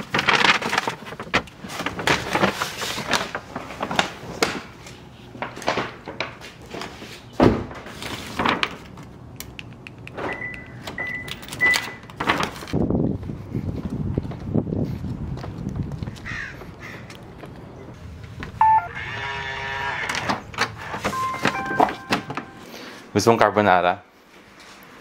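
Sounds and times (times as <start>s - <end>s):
paper bag rustling: 0.0s - 9.2s, 11.5s - 12.8s
short high beeps: 18.6s - 19.1s, 21.1s - 22.8s.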